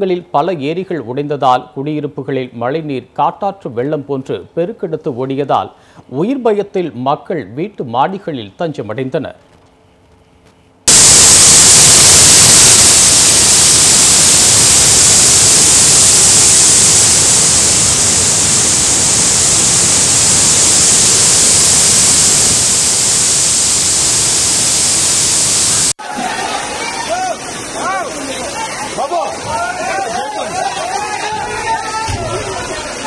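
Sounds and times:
rushing floodwater and waterfall: 26.3s - 31.2s.

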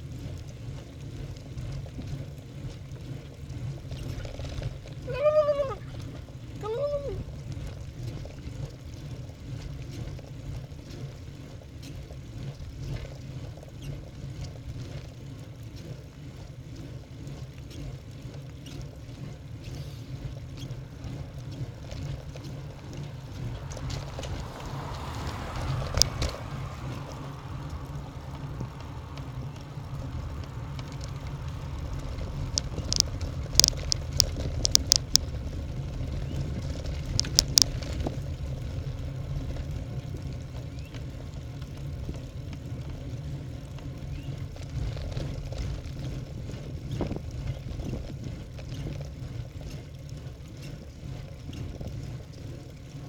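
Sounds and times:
wind on microphone: 4.0s - 7.5s, 19.6s - 40.2s, 44.2s - 49.0s
tyre noise on rough asphalt: 17.4s - 53.0s
sharp clicks: 32.5s - 35.3s, 37.1s - 37.9s.

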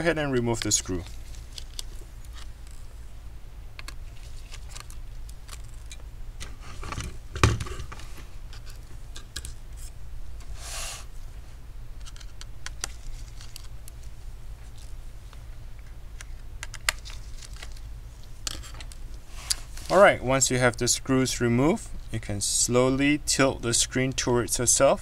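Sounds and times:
short scrape: 10.5s - 11.1s.

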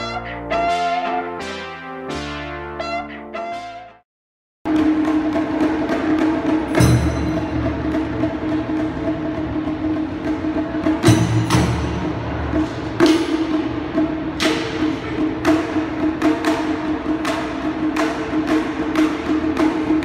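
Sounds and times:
clacking drum strikes: 4.7s - 20.0s
taiko drums booming strikes: 4.7s - 20.0s.

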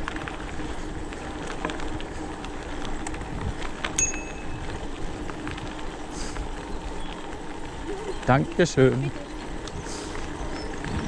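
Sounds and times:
bike clicks and rattles: 0.0s - 11.0s
bike tyre and ground noise: 0.0s - 11.0s
high ringing ping: 4.0s - 4.6s.

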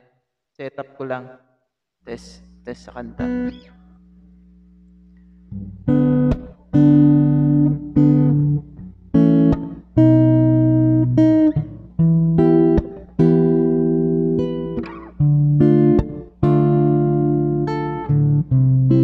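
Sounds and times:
faint hum: 2.0s - 18.4s
acoustic guitar strumming chords: 5.6s - 19.0s.

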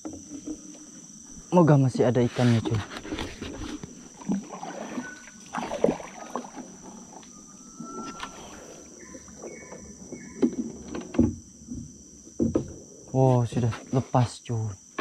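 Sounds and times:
canoe paddle pulling through water: 2.4s - 12.9s
water splashes: 3.7s - 9.4s
paddle knocks: 9.3s - 12.8s.

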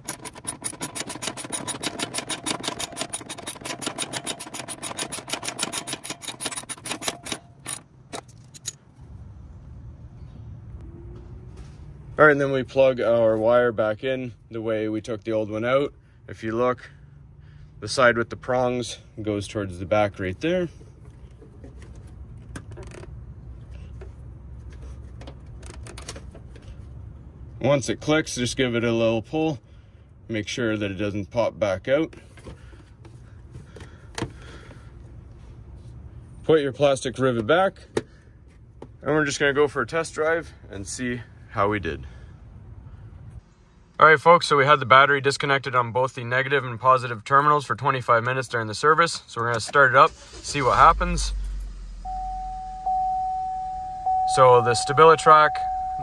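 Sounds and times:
ratchet wrench clicking: 0.0s - 8.8s
low rumble: 50.3s - 54.2s.

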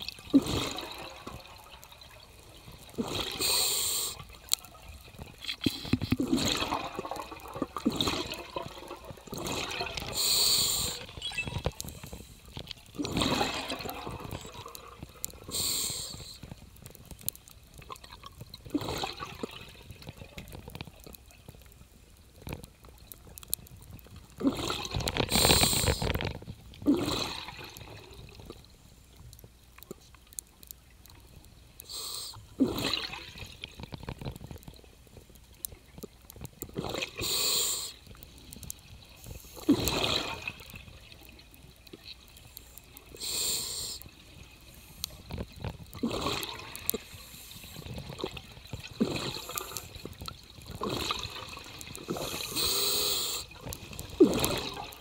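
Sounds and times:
exhaled bubbles: 0.0s - 21.2s, 23.4s - 28.6s, 31.4s - 34.9s, 36.0s - 55.0s
scuba regulator breathing: 3.0s - 4.3s, 10.1s - 11.1s, 15.4s - 16.5s, 25.3s - 26.1s, 37.2s - 38.0s, 42.6s - 44.1s, 52.1s - 54.8s.

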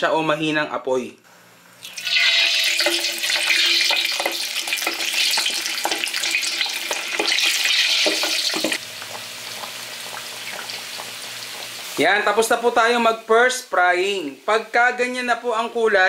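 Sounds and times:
pork sizzling and popping in oil: 1.8s - 14.4s.

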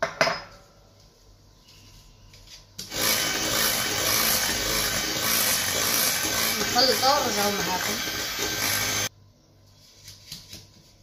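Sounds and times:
electric hand mixer running: 2.9s - 9.1s.

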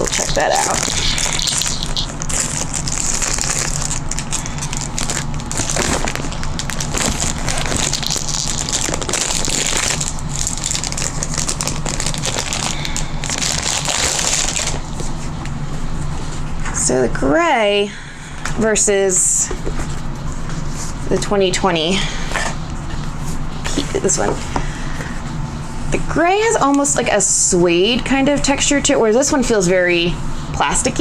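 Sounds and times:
plastic shrink wrap crinkling: 0.0s - 15.0s.

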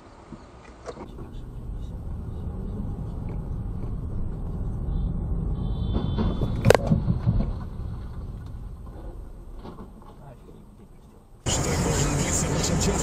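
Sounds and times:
engine and road rumble: 0.0s - 13.0s
thuds and clatter: 5.9s - 10.2s.

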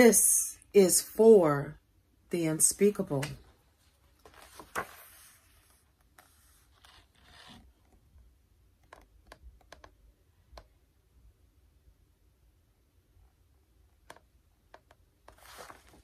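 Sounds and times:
paper rustling: 4.1s - 7.6s, 15.3s - 16.0s.

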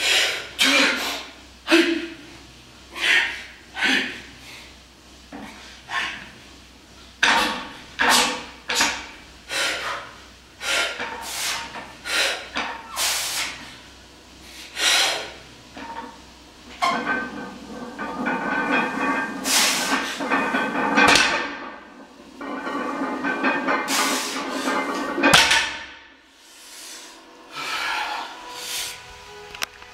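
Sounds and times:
long continuous breathy sound: 26.3s - 29.5s.

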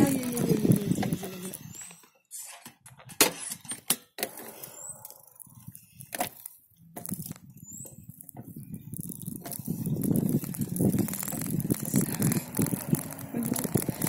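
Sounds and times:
bicycle rattling on paved road: 0.0s - 2.0s, 6.1s - 14.0s.

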